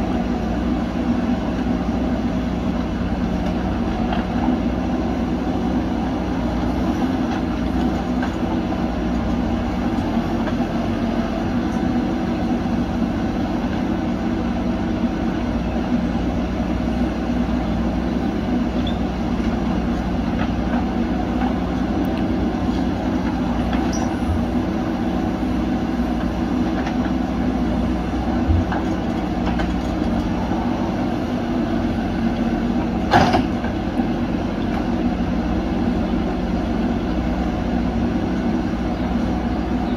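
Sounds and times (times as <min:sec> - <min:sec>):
diesel engines running under load: 0:00.0 - 0:39.9.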